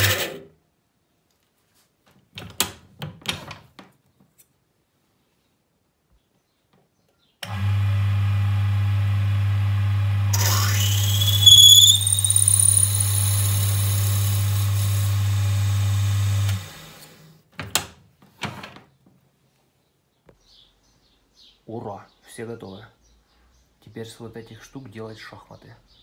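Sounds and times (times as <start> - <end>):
wood lathe humming: 7.5 - 17.2
high-pitched whine: 10.3 - 14.6.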